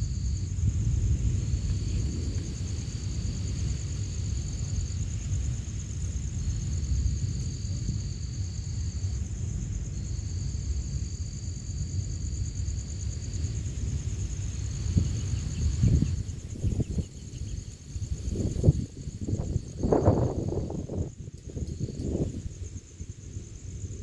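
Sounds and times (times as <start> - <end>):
constant low rumble: 0.0 - 24.0
crickets trilling: 0.0 - 24.0
higher insect call: 0.0 - 24.0.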